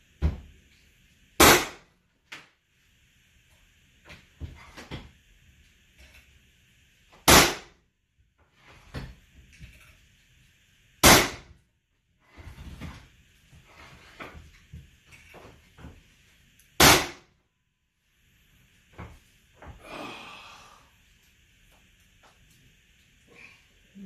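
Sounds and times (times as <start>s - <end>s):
pneumatic nailer bangs: 1.4s - 1.9s, 7.2s - 7.7s, 11.0s - 11.5s, 16.8s - 17.3s.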